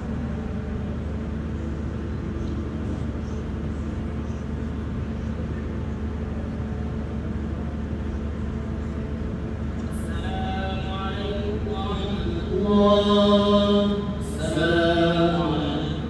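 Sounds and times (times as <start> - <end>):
electrical hum with hiss: 0.0 - 16.0
person chanting: 10.0 - 16.0.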